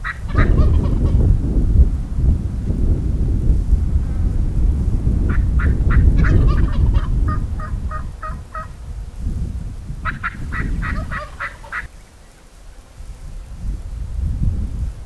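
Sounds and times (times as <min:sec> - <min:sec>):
turkey yelping: 0:00.0 - 0:01.2, 0:05.3 - 0:08.7, 0:10.0 - 0:11.9
wind rumble on microphone: 0:00.0 - 0:15.0.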